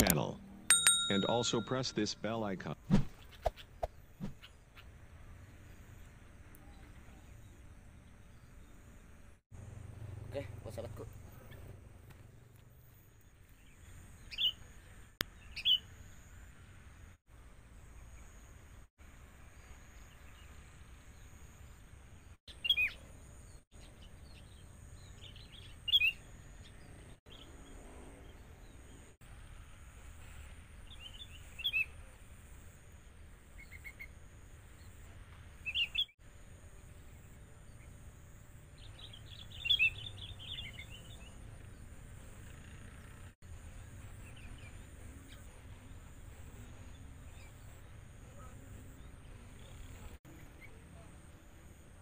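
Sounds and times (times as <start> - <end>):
bird chirping calls: 13.6 - 14.7, 38.8 - 41.4.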